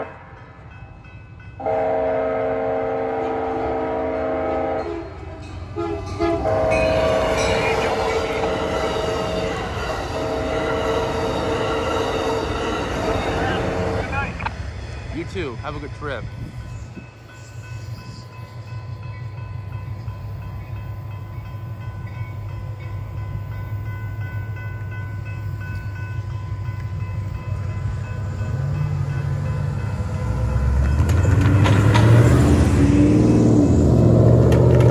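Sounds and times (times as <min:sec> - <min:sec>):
electronic crossing bell ringing: 0:06.7 - 0:10.0.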